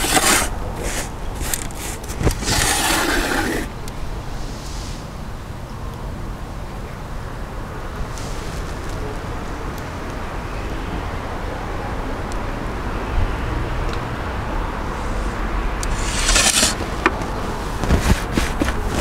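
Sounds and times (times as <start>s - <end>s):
loud scraping hiss: 0.0s - 3.7s, 15.0s - 18.9s.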